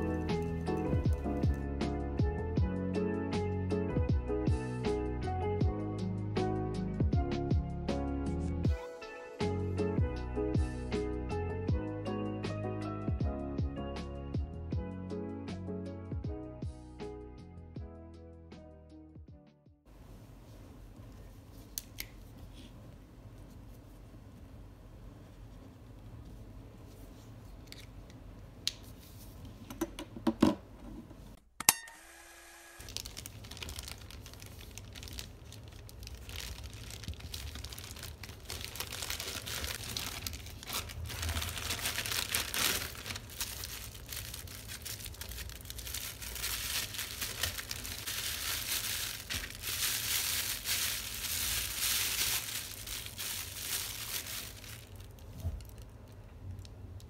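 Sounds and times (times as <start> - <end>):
plastic bag crinkling and tearing: 0.0 - 1.6, 32.8 - 56.2.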